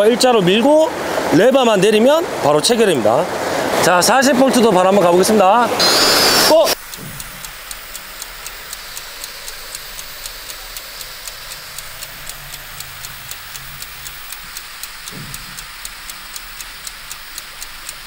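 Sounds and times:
faint hiss: 3.5s - 18.0s
clock ticking: 5.8s - 18.0s.

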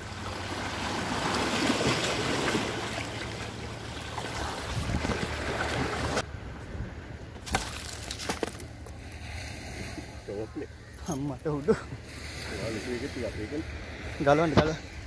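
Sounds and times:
waves washing against rocks: 0.0s - 6.2s
wind buffeting microphone: 4.6s - 6.9s.

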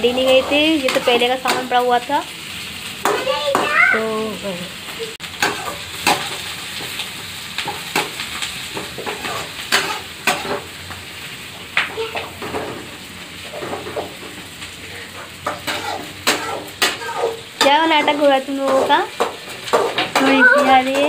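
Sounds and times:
metal spatula scraping a pan: 0.0s - 1.9s, 5.4s - 7.0s, 7.6s - 10.7s, 12.4s - 21.0s
vegetables sizzling in oil: 0.0s - 21.0s.

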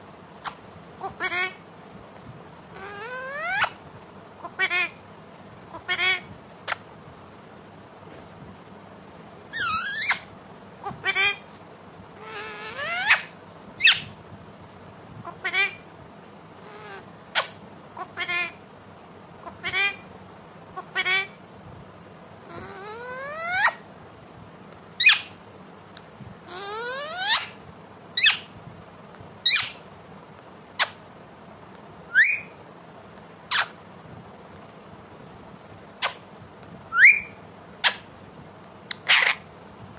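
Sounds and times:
parakeet squeaky calls: 0.4s - 1.6s, 2.7s - 3.8s, 4.4s - 5.0s, 5.7s - 6.8s, 9.5s - 11.4s, 12.2s - 14.2s, 15.3s - 15.8s, 16.6s - 18.6s, 19.4s - 20.1s, 20.8s - 21.4s, 22.4s - 23.8s, 25.0s - 25.4s, 26.5s - 27.6s, 28.2s - 28.6s, 29.4s - 29.8s, 30.8s - 31.0s, 32.1s - 32.6s, 33.5s - 33.8s, 36.0s - 36.2s, 36.9s - 38.1s, 38.9s - 39.5s.

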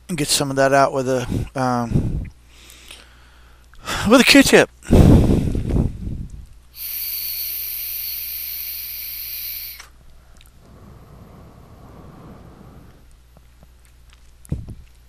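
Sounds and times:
faint exhale: 1.3s - 4.0s, 6.8s - 13.1s
airy hiss of vape firing: 6.7s - 10.0s.

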